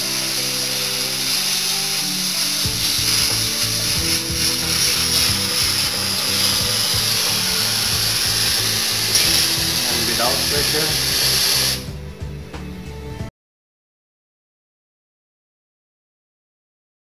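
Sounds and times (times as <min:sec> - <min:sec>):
torch flame hissing: 0:00.0 - 0:12.0
background music with beat: 0:00.0 - 0:13.3.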